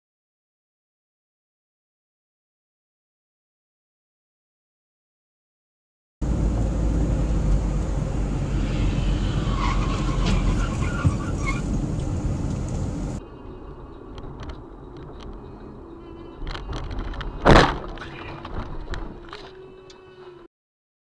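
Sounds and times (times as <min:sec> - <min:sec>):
road and engine noise in car: 0:06.2 - 0:20.5
short high-pitched squeaks: 0:09.4 - 0:11.8, 0:13.3 - 0:20.5.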